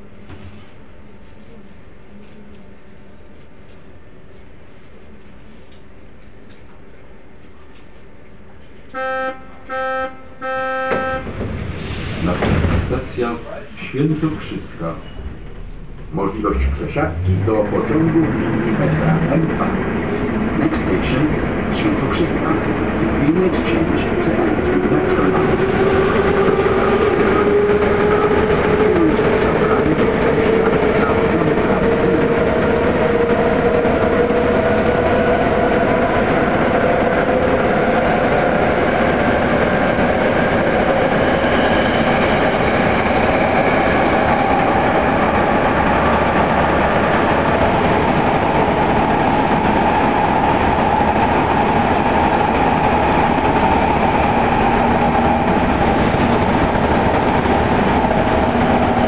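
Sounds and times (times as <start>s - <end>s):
wheels rumbling on rail: 0.0s - 59.0s.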